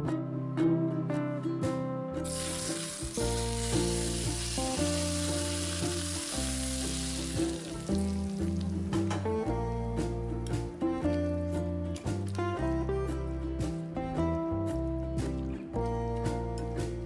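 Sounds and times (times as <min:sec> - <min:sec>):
acoustic guitar music: 0:00.0 - 0:17.0
hot oil sizzling: 0:02.2 - 0:09.3.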